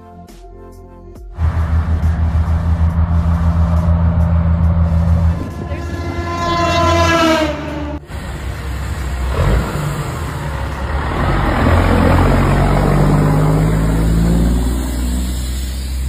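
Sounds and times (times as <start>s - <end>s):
truck air horn: 1.4s - 8.1s
diesel truck engine accelerating: 1.4s - 16.0s.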